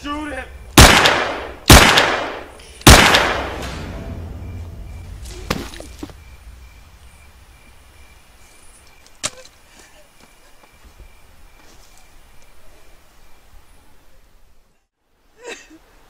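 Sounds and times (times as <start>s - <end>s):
pistol shot ringing out: 0.8s - 4.8s.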